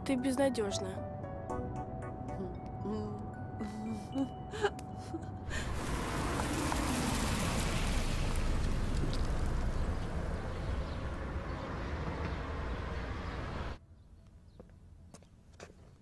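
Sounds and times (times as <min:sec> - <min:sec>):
car engine and tyre noise: 0:05.5 - 0:13.8.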